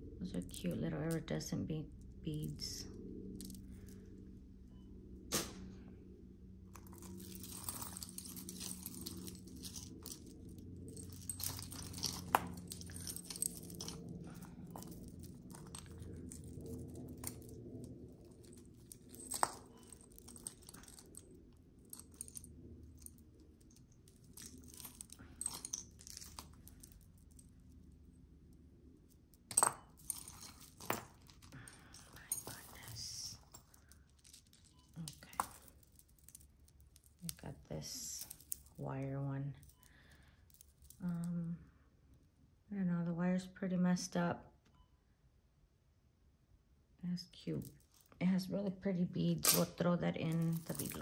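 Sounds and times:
steady low hum: 0.0 - 43.1
beaded necklaces clicking: 0.4 - 4.2, 6.6 - 38.9, 39.6 - 41.5, 49.4 - 51.0.

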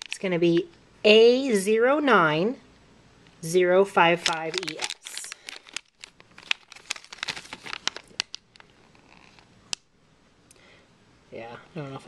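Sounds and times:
plastic bag crinkling: 4.2 - 9.5.

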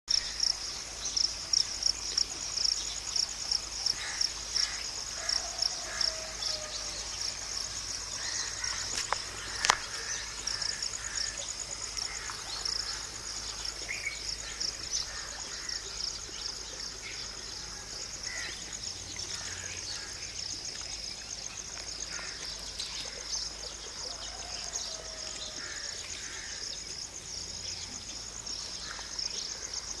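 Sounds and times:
insects chirping: 0.1 - 30.0.

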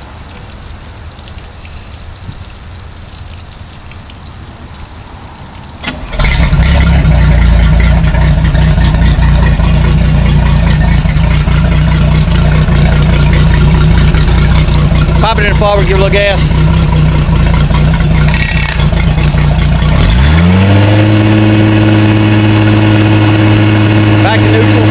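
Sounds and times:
hose water splashing: 0.0 - 24.9
boat engine cranking and idling: 5.8 - 20.4.

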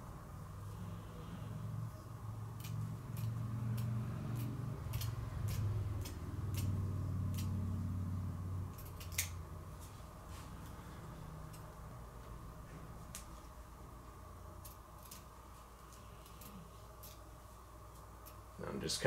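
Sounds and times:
low hum: 0.0 - 18.6
scissors snipping fabric: 2.6 - 7.6, 8.7 - 9.4.

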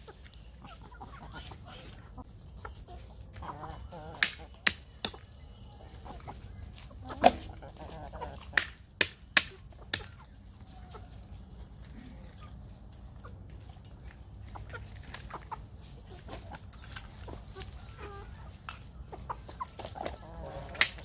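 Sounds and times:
chickens clucking softly: 0.0 - 8.8, 9.5 - 21.0.

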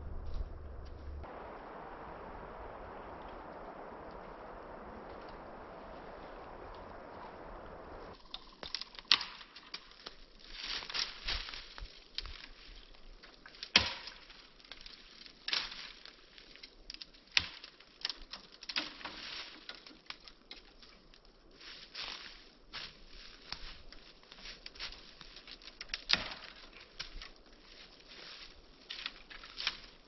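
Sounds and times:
crackling and sharp snaps: 0.2 - 21.6, 22.8 - 30.0
loud pops: 0.4 - 8.2.

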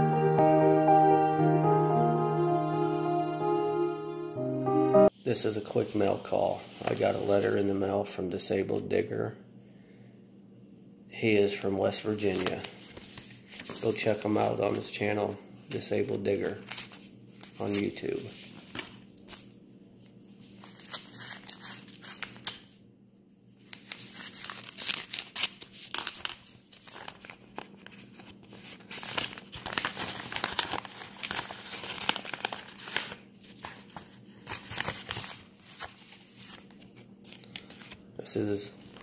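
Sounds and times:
paper envelope rustling: 5.7 - 7.8, 12.1 - 15.1, 15.7 - 22.7, 23.6 - 39.0.

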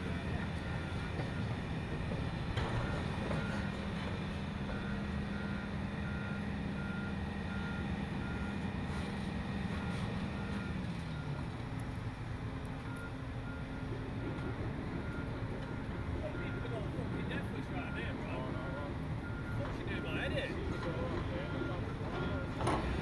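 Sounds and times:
excavator diesel engines running: 0.0 - 23.0
machine warning alarm beeping: 12.9 - 22.7.

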